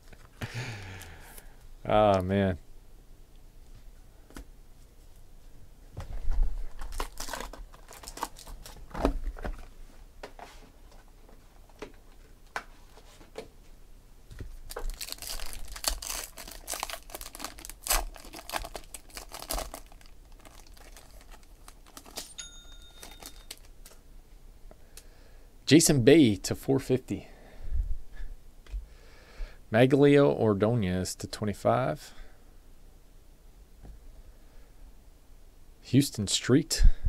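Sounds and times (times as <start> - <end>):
foil wrapper crinkling and tearing: 6.7 - 8.8, 14.7 - 22.4, 23.0 - 24.0.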